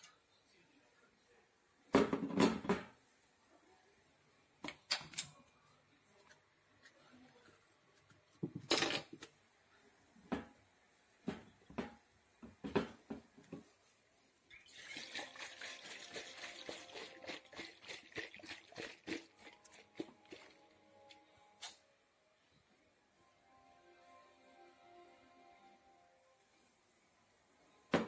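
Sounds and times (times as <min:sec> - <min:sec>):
objects clattering on tiled counter: 0:02.0 - 0:03.0, 0:08.4 - 0:09.3.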